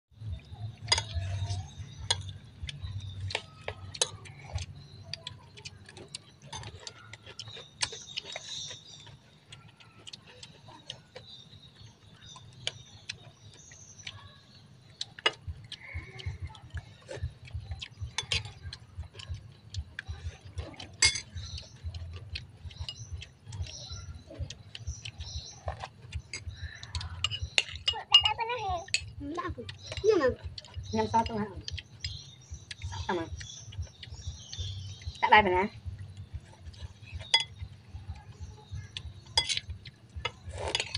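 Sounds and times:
spoons clinking on ceramic bowls: 21.0s - 21.9s, 26.3s - 29.2s, 37.2s - 37.6s, 38.8s - 40.9s.

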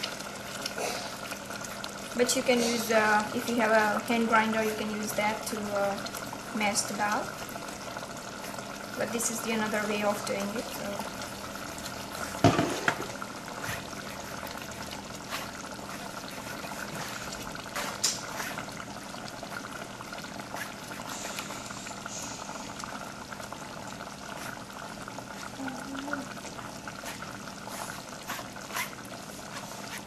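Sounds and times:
liquid dripping and pouring: 5.1s - 30.0s
ladle knocking on strainer: 12.4s - 13.1s.

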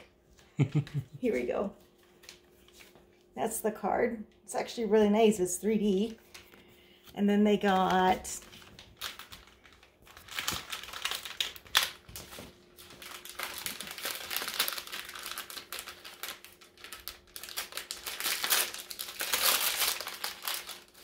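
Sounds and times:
wrapping paper crinkling: 7.6s - 21.0s.

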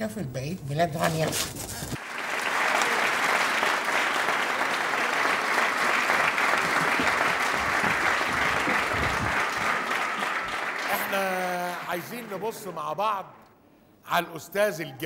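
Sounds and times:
studio audience applauding: 2.0s - 13.0s.

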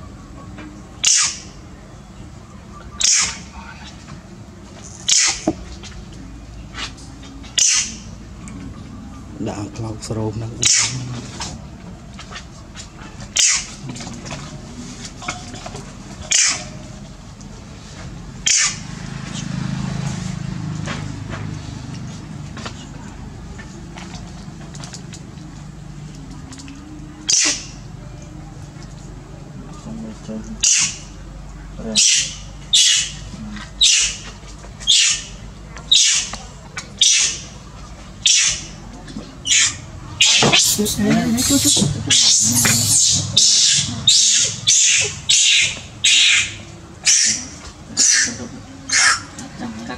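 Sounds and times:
monkey screaming: 3.0s - 3.4s, 13.4s - 13.6s, 16.3s - 16.7s, 39.4s - 49.2s
hissing spray bursts: 40.4s - 43.4s.

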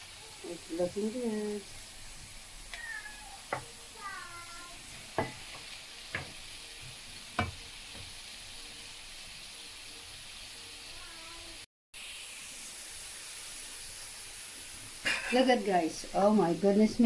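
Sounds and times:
potatoes sizzling in oil: 0.0s - 17.0s
spatula knocking against pan: 3.5s - 3.8s, 5.1s - 8.1s.

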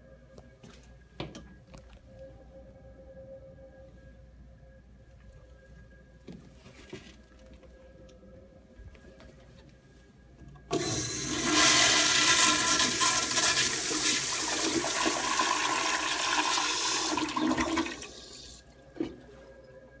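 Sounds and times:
toilet flushing: 10.7s - 19.2s.

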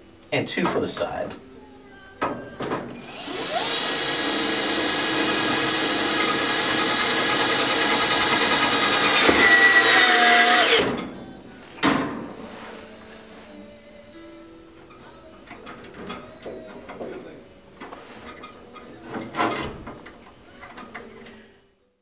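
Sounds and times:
cordless drill driving a screw: 3.0s - 10.8s.

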